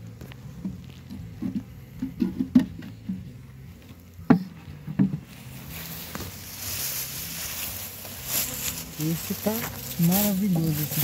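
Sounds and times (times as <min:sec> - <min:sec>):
bees humming: 0:00.0 - 0:11.0
wooden knocks on beehive box: 0:04.3 - 0:05.2
rustling hiss: 0:05.2 - 0:11.0.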